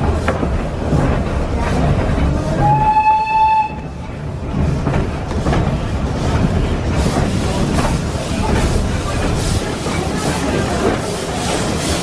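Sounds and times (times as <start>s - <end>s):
train rumbling and clattering: 0.0s - 12.0s
steam locomotive whistle: 2.6s - 4.0s.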